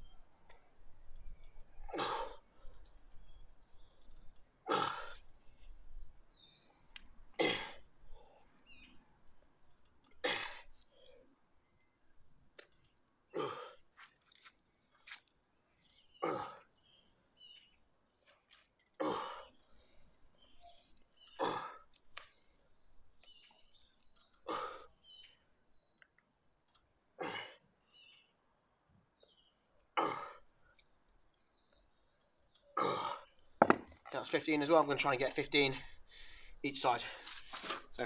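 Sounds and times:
birds chirping faintly: 0.0 - 38.0
man breathing hard: 35.8 - 37.3.

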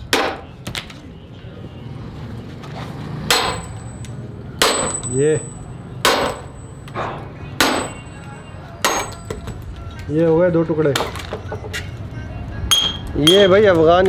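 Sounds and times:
sledgehammer striking steel wedges: 0.0 - 0.5, 3.2 - 4.0, 4.6 - 5.4, 6.0 - 8.1, 8.8 - 9.4.

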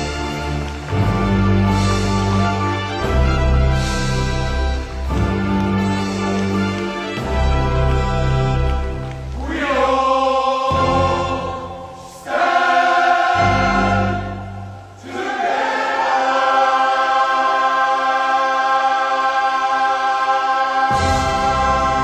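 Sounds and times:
men's choir singing: 9.3 - 22.0.

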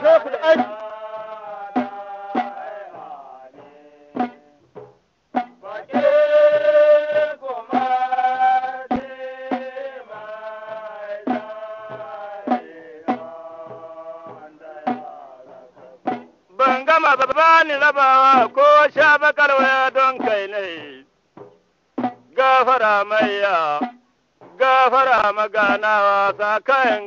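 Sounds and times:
hand drum strikes: 21.4 - 22.4, 25.6 - 25.9
person singing long notes: 24.5 - 27.0.

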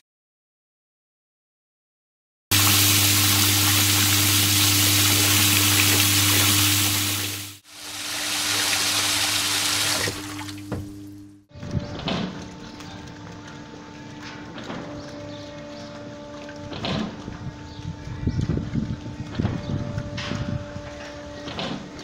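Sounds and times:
water gushing into metal tub: 2.5 - 11.2.

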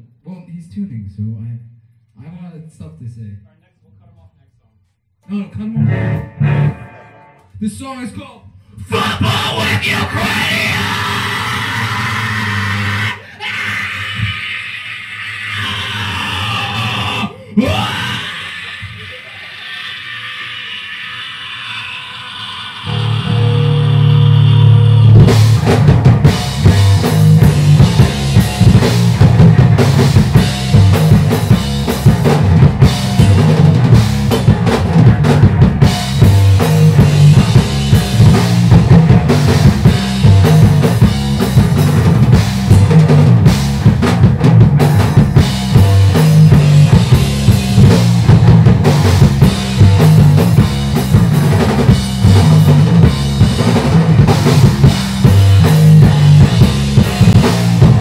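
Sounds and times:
electric guitar: 5.8 - 7.6, 9.5 - 14.4, 21.7 - 58.0
busy drum kit: 22.9 - 58.0.

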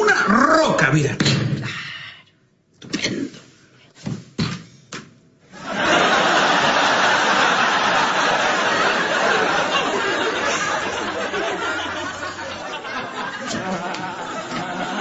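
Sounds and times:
audience laughter: 5.6 - 15.0.

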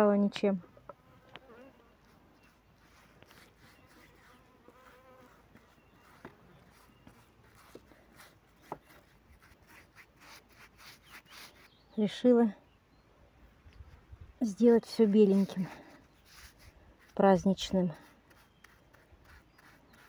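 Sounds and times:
flying insect buzzing: 3.5 - 6.3.

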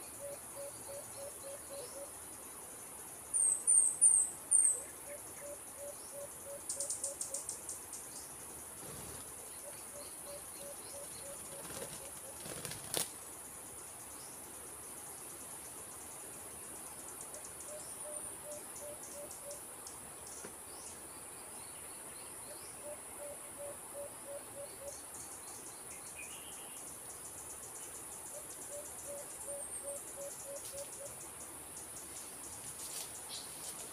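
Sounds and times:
dove hooting softly: 0.0 - 2.2, 4.7 - 7.5, 17.4 - 19.7, 22.5 - 25.0, 28.3 - 31.2
insects droning: 0.0 - 33.9.

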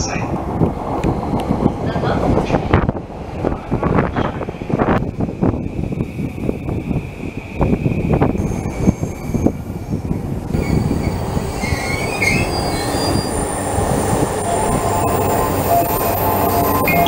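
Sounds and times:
train rumbling: 0.0 - 17.0
brake and wheel squeal: 11.6 - 13.6.

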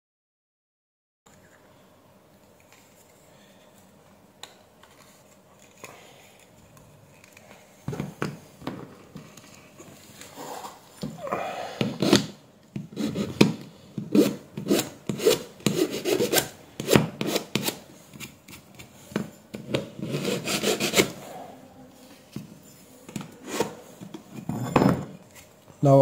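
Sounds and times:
metal file scraping plastic: 14.1 - 18.6, 19.6 - 21.3.

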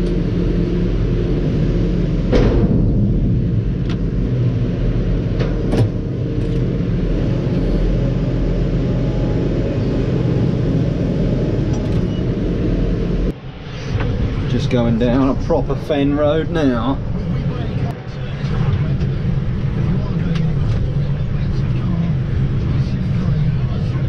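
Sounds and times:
tractor diesel engine running: 0.0 - 13.3.

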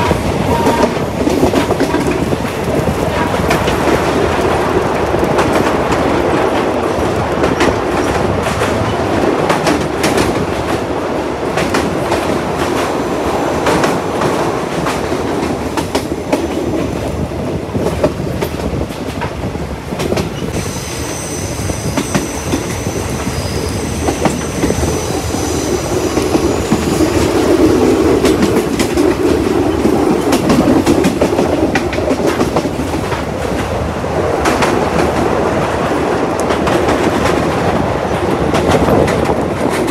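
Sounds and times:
train rumble and wheel clatter: 0.0 - 39.9
high wheel squeal: 20.6 - 27.4.

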